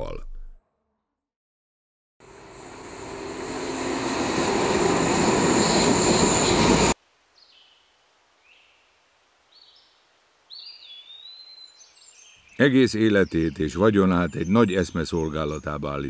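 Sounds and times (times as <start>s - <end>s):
train rumbling on rails: 2.2s - 7.0s
wheel squeal: 4.0s - 7.0s
faint bird chirps: 7.3s - 16.0s.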